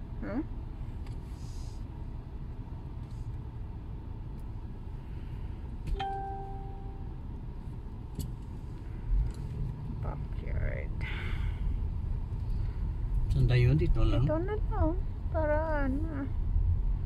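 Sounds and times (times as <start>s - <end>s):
car engine and road noise: 0.0s - 17.0s
ringing ding: 6.0s - 7.1s.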